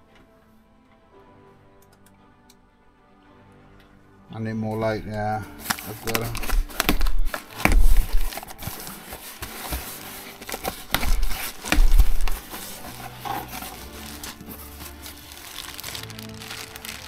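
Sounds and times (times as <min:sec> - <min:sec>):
plastic bags rustling and crinkling: 0:05.1 - 0:17.0
dull bumps against box: 0:06.4 - 0:08.8, 0:10.6 - 0:12.6.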